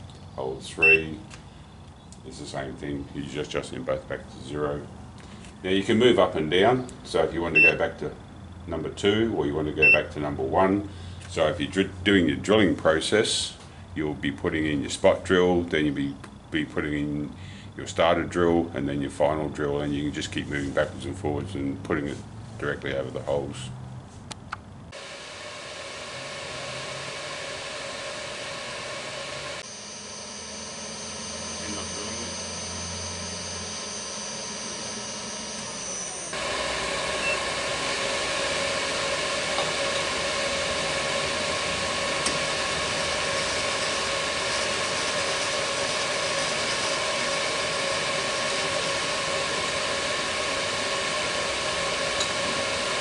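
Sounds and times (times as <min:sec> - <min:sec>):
milling machine motor whining: 0:24.9 - 0:53.0.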